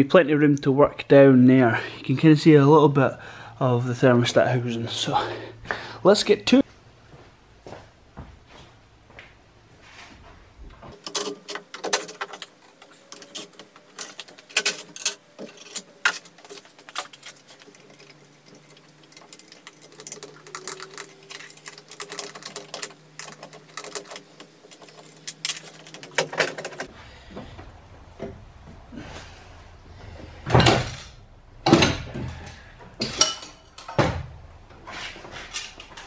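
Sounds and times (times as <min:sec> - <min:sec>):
hand tools clicking and clattering: 0:10.9 - 0:26.9.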